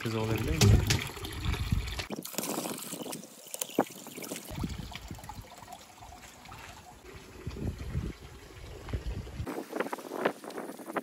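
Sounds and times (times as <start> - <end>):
water trickling from fountain: 0.0 - 11.0.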